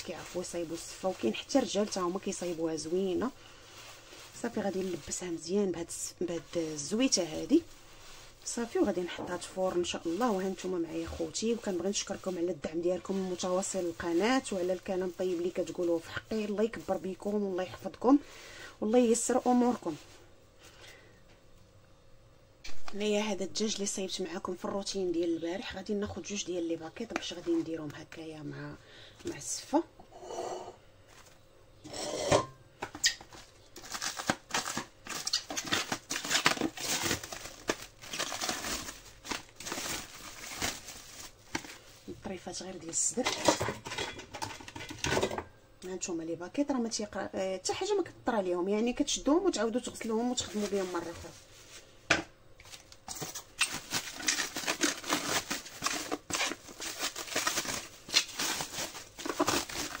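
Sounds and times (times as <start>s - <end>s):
plastic bags crinkling: 0.0s - 18.0s, 33.0s - 42.4s, 49.8s - 51.8s, 52.6s - 60.0s.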